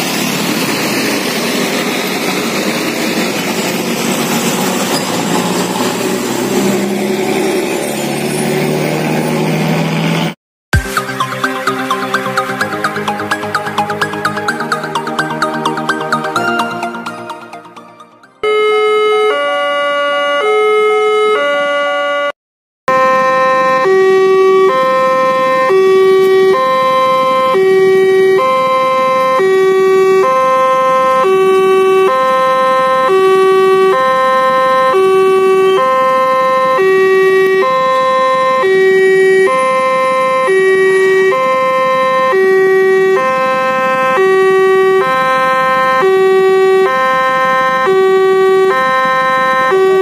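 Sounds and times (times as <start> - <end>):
road traffic: 0.0 - 10.3
level crossing alarm two-tone: 10.8 - 22.3, 23.8 - 50.0.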